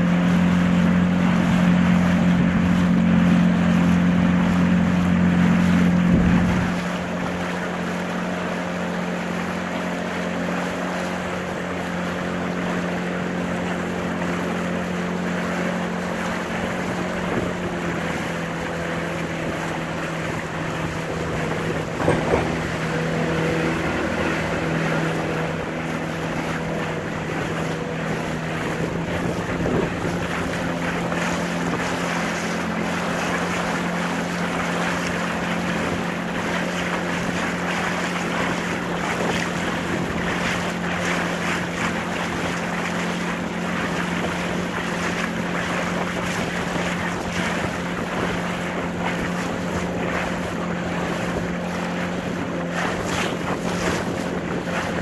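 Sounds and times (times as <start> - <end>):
boat motor running: 0.0 - 55.0
water splashing at hull: 0.0 - 55.0
wind buffeting microphone: 0.6 - 8.0, 13.2 - 55.0
loud knocks: 21.9 - 23.1.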